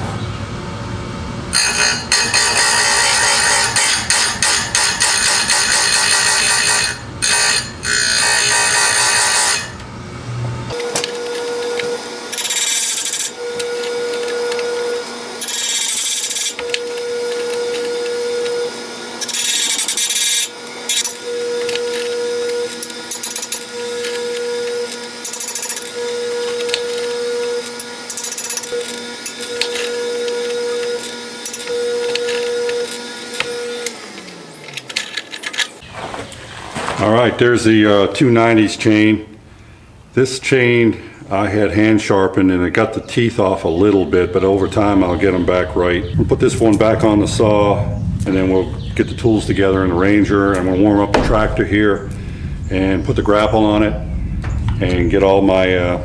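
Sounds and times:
grinder motor tone: 1.5s - 9.9s, 10.7s - 35.8s
grinder wheel scraping chain teeth: 1.6s - 9.8s, 10.7s - 35.8s.

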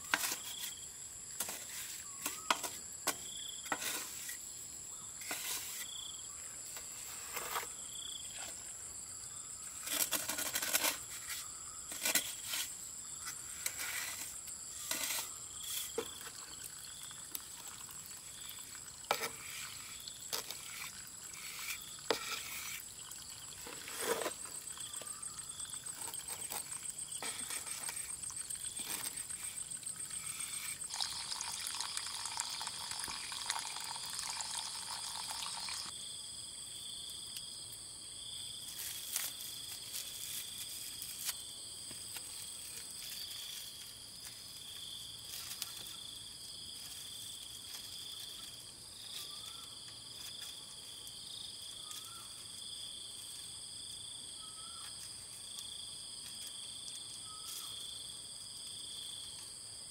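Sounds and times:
insect buzz: 0.0s - 59.9s
insects chirring: 0.0s - 59.9s
trowel scraping wet cement: 0.1s - 0.8s, 1.4s - 4.4s, 5.2s - 6.0s, 7.0s - 7.8s, 9.8s - 16.1s, 19.1s - 22.9s, 23.5s - 30.9s.

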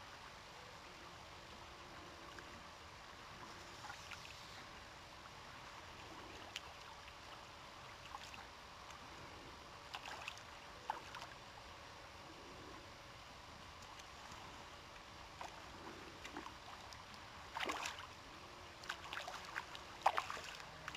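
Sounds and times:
water and air hiss: 3.3s - 6.5s
fish splashing: 15.3s - 18.2s, 18.8s - 20.9s.

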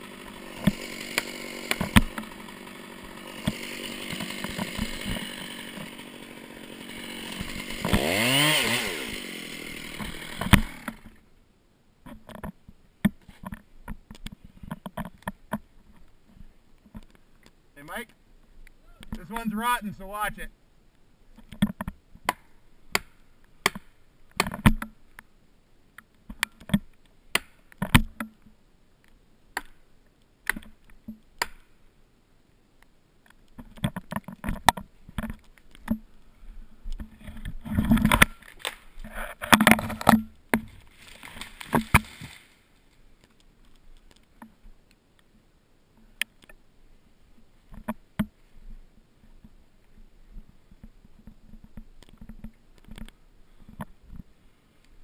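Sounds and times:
tree crashing through branches: 6.8s - 10.9s, 40.7s - 42.7s.

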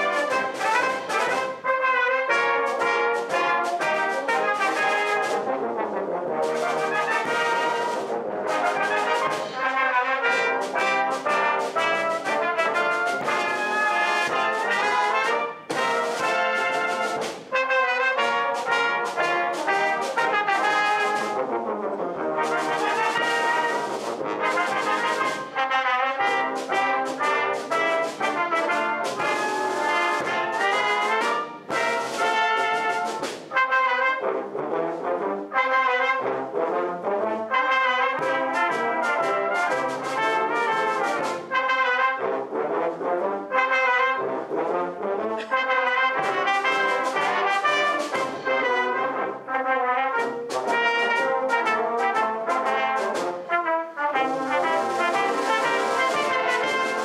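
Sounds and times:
percussion strokes: 0.0s - 5.5s, 6.4s - 21.6s, 22.4s - 33.8s, 37.6s - 42.0s, 45.4s - 49.2s, 54.2s - 57.0s
brass band playing a march: 0.0s - 57.0s.

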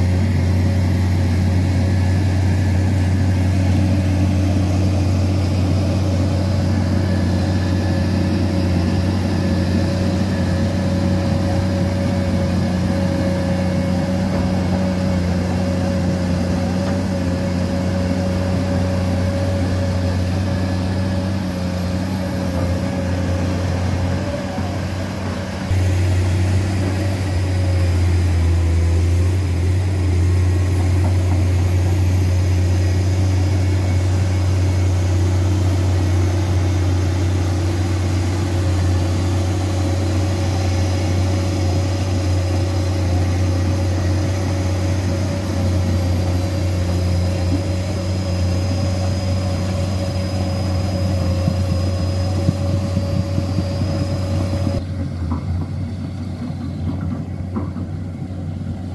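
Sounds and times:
excavator diesel engine running: 0.0s - 58.9s.

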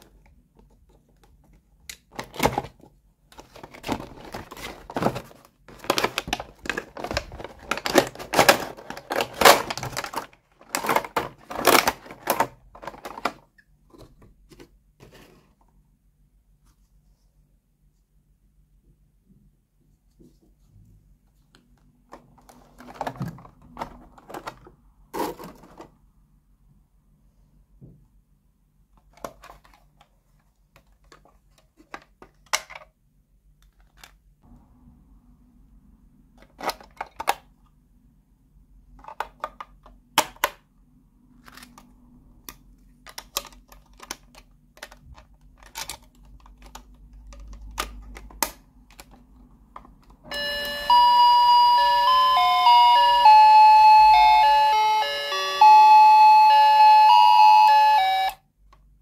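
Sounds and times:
tinny electronic toy tune: 50.3s - 58.4s.

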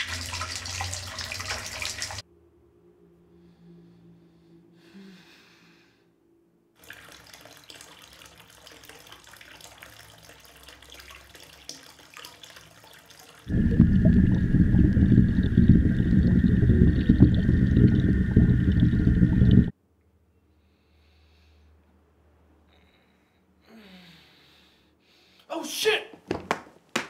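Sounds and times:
water trickling in bathtub: 0.0s - 2.2s, 6.8s - 19.7s
loud low rumbling drone: 13.5s - 19.7s.

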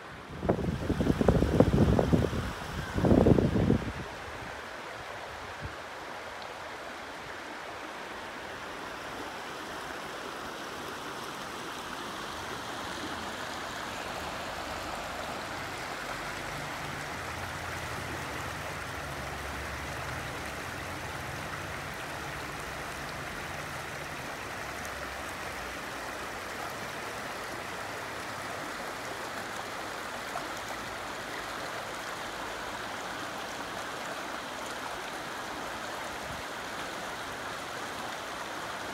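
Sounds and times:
water rushing over rocks: 0.0s - 38.9s.

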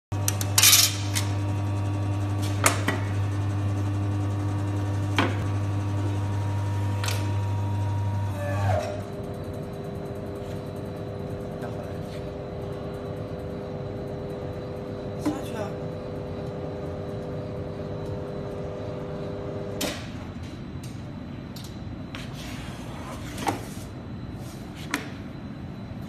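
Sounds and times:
machine humming: 0.1s - 22.1s.

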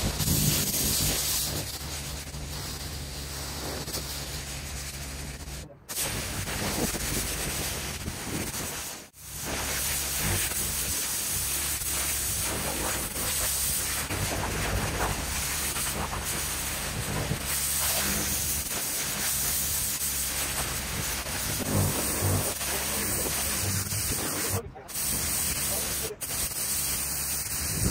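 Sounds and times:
pressure washer spraying stone: 0.0s - 27.9s
low steady hum: 20.4s - 24.9s.

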